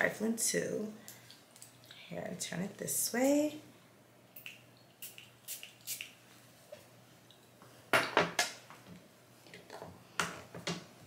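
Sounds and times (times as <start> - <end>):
perfume atomizer spraying: 4.4 - 6.2.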